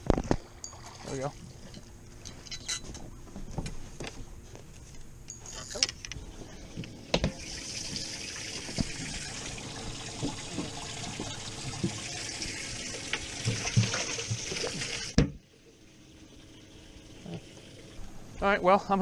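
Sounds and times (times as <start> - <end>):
water running and splashing: 7.3 - 15.2.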